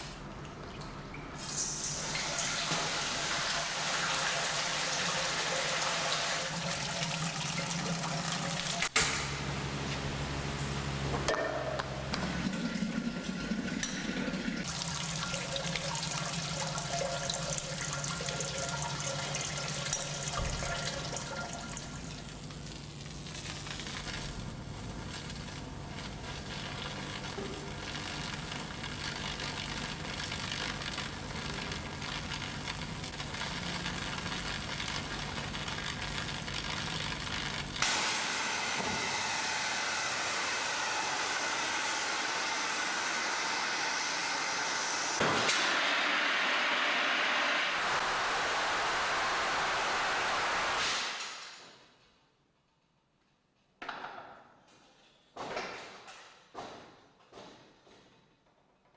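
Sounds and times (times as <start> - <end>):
loud hiss of canisters jetting smoke: 37.8 - 44.8, 47.7 - 51.6.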